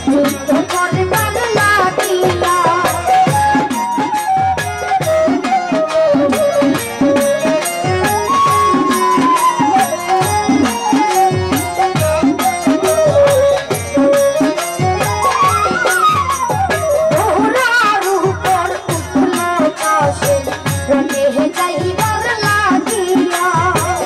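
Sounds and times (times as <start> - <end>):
hand drums beating: 0.0 - 24.0
woodwind melody: 3.0 - 18.0.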